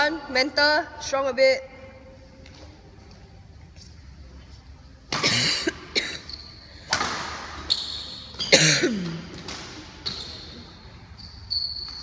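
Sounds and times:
rackets striking shuttlecock: 6.8 - 8.4.

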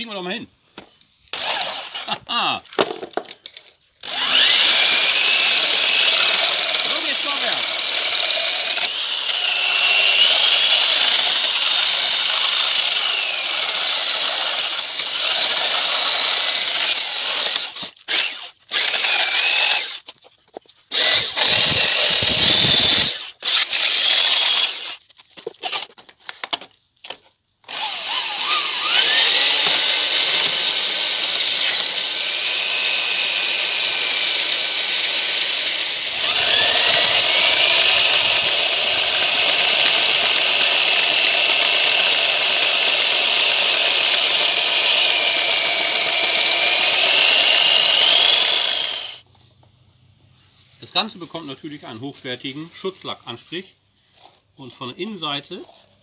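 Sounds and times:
electric drill spinning: 1.3 - 2.1, 4.0 - 20.0, 20.9 - 25.0, 27.7 - 49.2
belt sander sanding steel: 4.1 - 13.9, 27.7 - 49.2.

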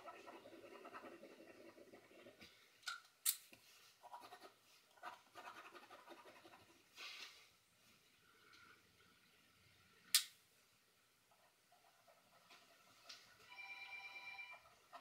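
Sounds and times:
pen scratching on paper: 0.0 - 2.5, 4.0 - 6.8, 14.5 - 15.0.

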